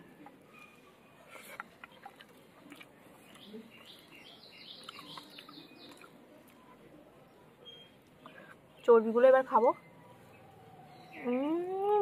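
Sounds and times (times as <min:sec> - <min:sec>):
small bird chirping: 0:03.2 - 0:12.0.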